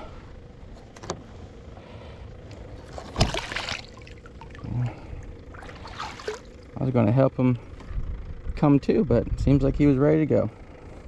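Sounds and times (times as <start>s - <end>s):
fish splashing into water: 3.0s - 4.7s, 5.5s - 6.7s.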